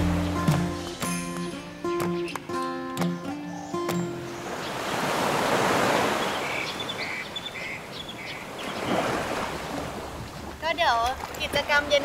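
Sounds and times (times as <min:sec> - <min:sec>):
sea waves washing in: 0:04.1 - 0:12.0.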